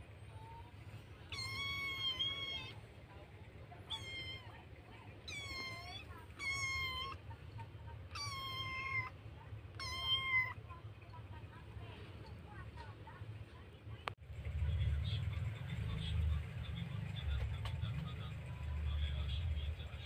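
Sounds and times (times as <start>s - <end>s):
kittens meowing: 1.3s - 2.8s, 3.8s - 4.6s, 5.2s - 7.2s, 8.1s - 9.2s, 9.8s - 10.6s.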